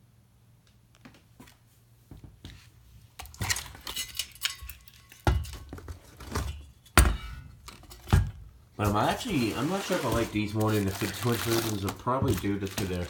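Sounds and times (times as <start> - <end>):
metal clinking and rattling: 3.2 - 8.2.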